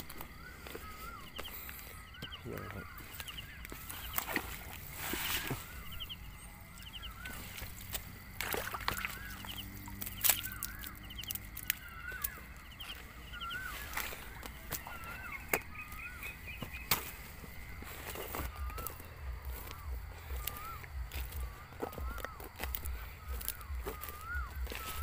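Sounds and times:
frogs calling: 0.0 - 25.0
dry leaves rustling and snapping: 7.0 - 25.0.

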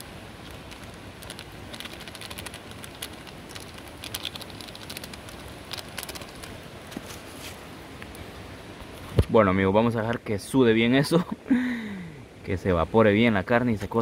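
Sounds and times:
wood fire crackling: 0.0 - 7.2
steady hiss: 0.0 - 14.0.

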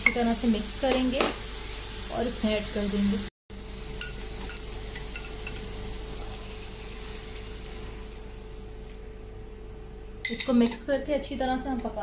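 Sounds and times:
onions sizzling in oil: 0.0 - 8.7.

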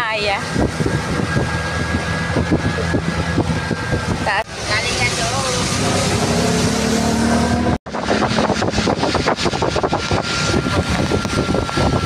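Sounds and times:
thin steady whine: 0.0 - 6.6
vehicle road and engine noise: 0.0 - 12.0.

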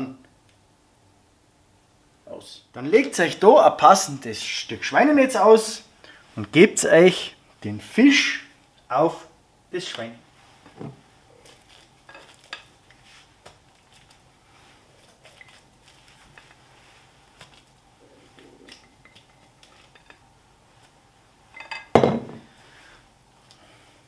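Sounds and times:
dish set down on counter: 21.6 - 22.5.

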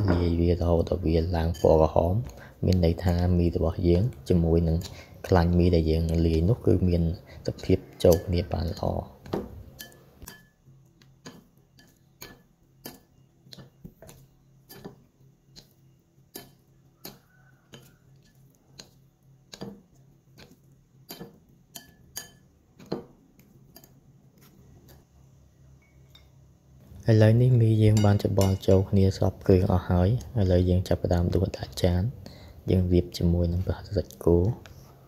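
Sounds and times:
spoon and chopsticks clinking bowl: 1.2 - 2.4, 7.6 - 8.9, 9.7 - 10.6, 11.2 - 15.0, 15.6 - 18.9, 21.1 - 23.1, 27.8 - 28.9.

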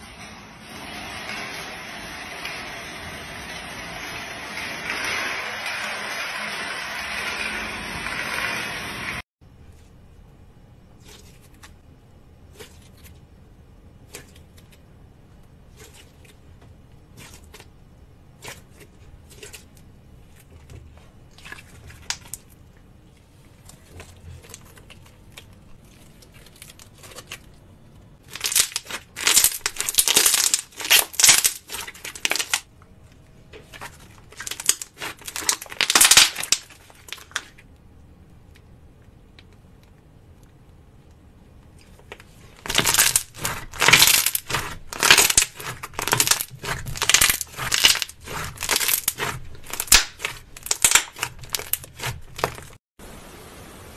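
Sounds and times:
slime dense crackling: 28.2 - 32.7, 33.6 - 37.6, 42.1 - 52.8.

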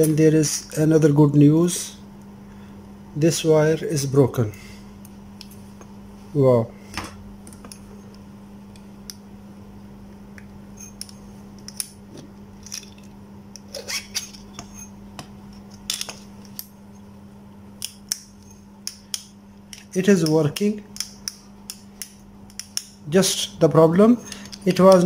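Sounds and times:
steady low hum: 0.0 - 25.0
small parts clicking and scraping: 12.6 - 14.9.

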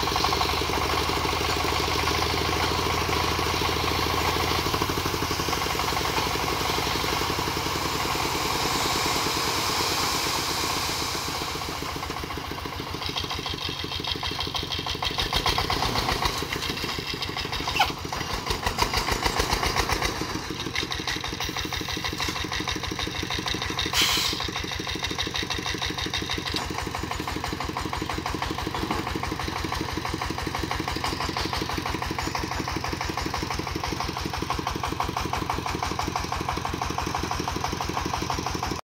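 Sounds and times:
diesel engine chugging: 0.0 - 38.8.

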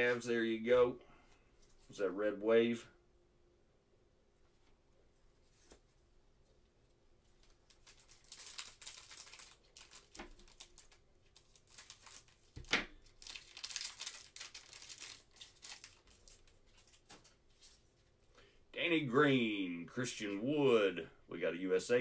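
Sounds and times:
cards shuffling and rustling: 7.3 - 18.1.

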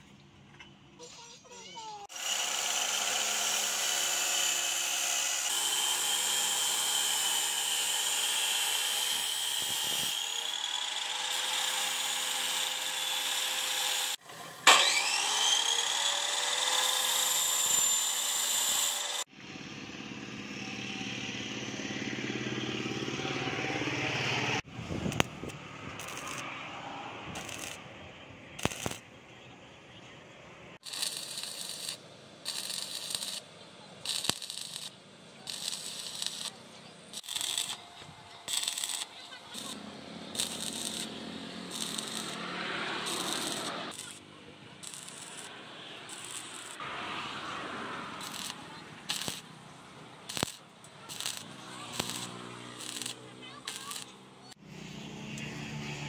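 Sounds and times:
electric grinder grinding steel: 2.1 - 19.3, 26.0 - 26.5, 27.4 - 27.8, 28.6 - 29.0, 30.8 - 49.5, 50.2 - 55.6.

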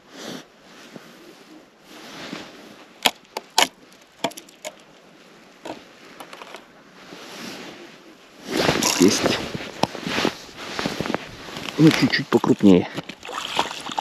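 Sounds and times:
sharp clicks and knocks: 3.0 - 4.8
rustling and scuffing: 5.7 - 14.0.

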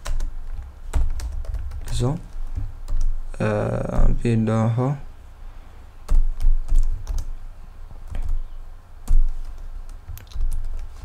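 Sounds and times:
computer keyboard typing: 0.0 - 3.6, 6.1 - 7.4, 9.0 - 11.0.

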